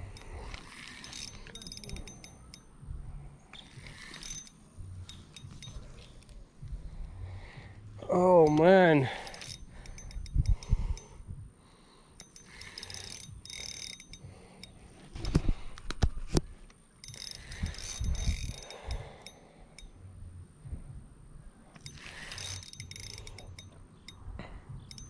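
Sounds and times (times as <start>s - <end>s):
fishing reel gears whirring: 0.0s - 7.1s, 8.0s - 11.3s, 12.1s - 15.3s, 16.9s - 20.0s, 21.7s - 24.2s, 24.8s - 25.0s.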